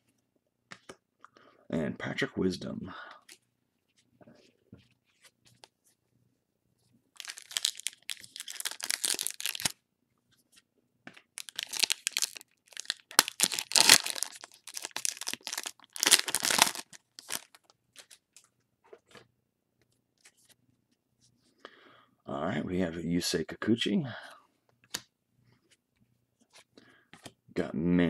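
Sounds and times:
foil wrapper tearing and crinkling: 0:07.2 - 0:09.7, 0:11.4 - 0:17.6.

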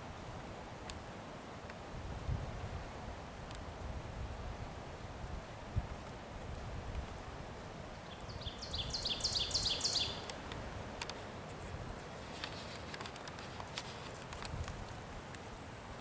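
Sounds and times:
songbird singing high notes: 0:08.1 - 0:10.3
light clicks: 0:12.3 - 0:15.5.

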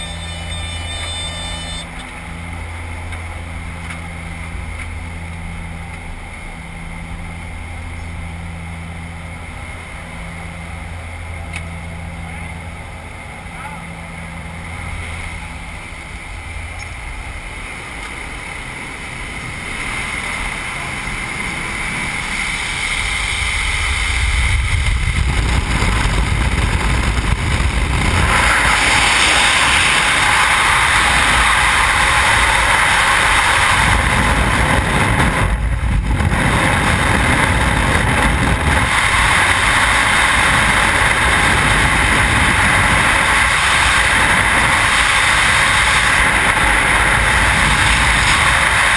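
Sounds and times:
airplane engine drone: 0:00.0 - 0:48.9
freefall wind rushing: 0:14.4 - 0:48.9.

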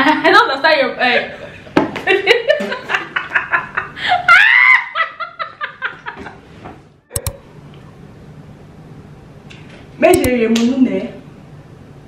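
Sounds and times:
women laughing: 0:02.1 - 0:06.4
short sharp click: 0:07.1 - 0:07.4.

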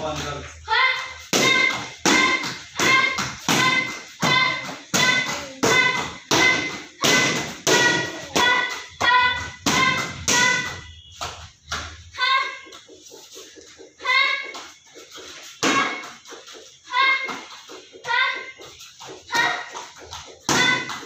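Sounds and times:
kicks slapping paddle targets: 0:01.3 - 0:12.0, 0:19.3 - 0:21.0.

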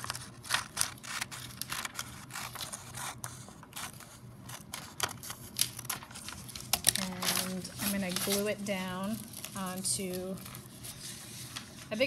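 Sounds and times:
scissors snipping paper: 0:00.0 - 0:10.6
paper rustling: 0:00.0 - 0:12.0.

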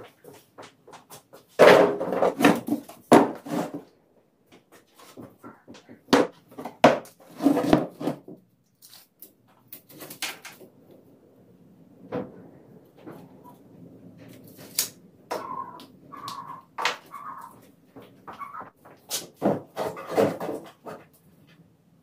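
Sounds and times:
wooden branches knocking: 0:14.5 - 0:21.1.

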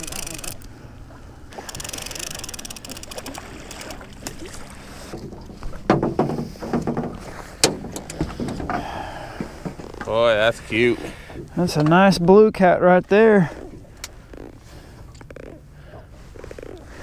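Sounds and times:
fishing reel ticking: 0:00.0 - 0:00.7, 0:01.5 - 0:04.1.

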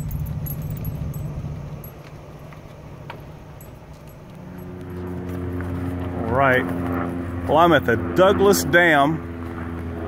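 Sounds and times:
light rattling clicks: 0:00.0 - 0:02.1
vehicle engine and road rumble: 0:00.0 - 0:10.0.

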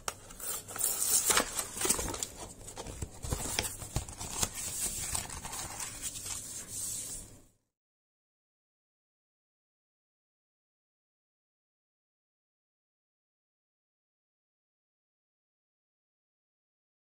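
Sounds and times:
paper and card rustling: 0:00.0 - 0:07.4.

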